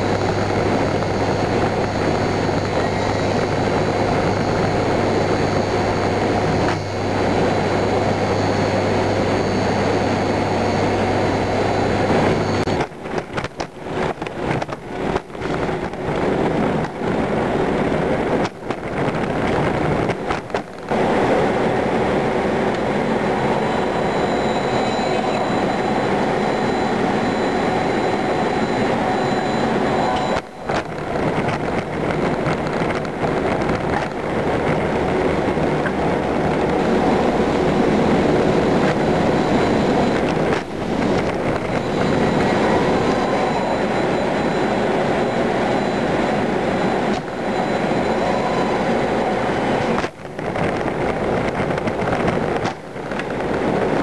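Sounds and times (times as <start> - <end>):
robotic machinery rumble and whir: 0.0 - 21.4, 22.0 - 54.0.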